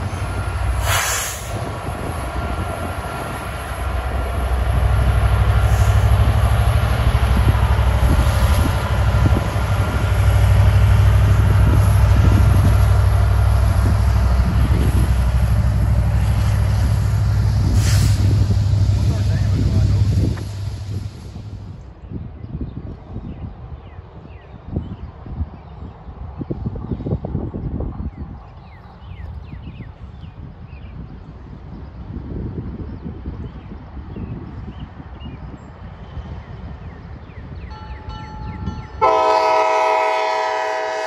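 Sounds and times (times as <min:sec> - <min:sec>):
train wheels rumbling on rail: 0:00.0 - 0:41.0
faint knocks of rail cars: 0:20.2 - 0:20.8.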